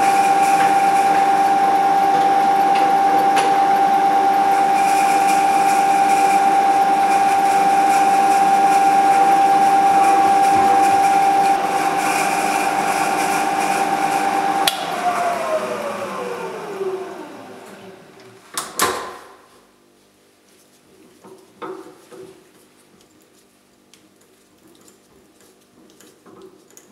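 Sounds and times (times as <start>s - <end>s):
milling machine spindle whining: 0.0s - 18.2s.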